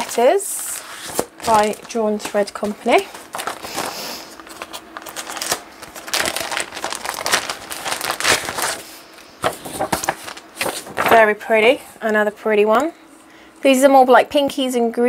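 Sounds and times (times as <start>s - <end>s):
paper rustling and crinkling: 0.0s - 11.4s.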